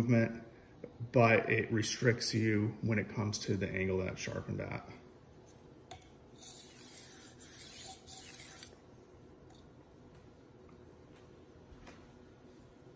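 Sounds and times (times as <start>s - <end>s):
knife scraping on whetstone: 6.4s - 8.8s.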